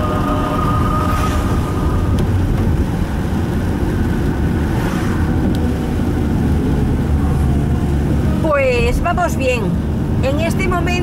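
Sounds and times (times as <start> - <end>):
car driving on wet road: 0.0 - 11.0
heavy rain: 0.0 - 11.0.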